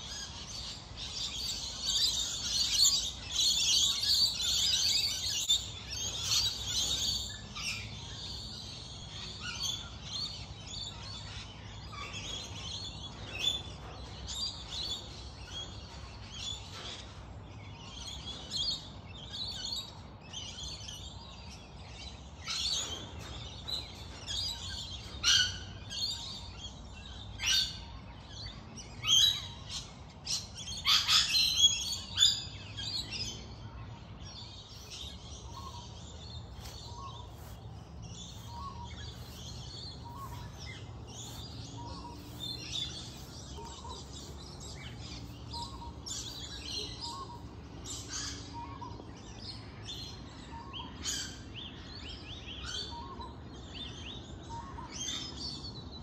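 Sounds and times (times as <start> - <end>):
wild birds chirping and calling: 0.0 - 56.0.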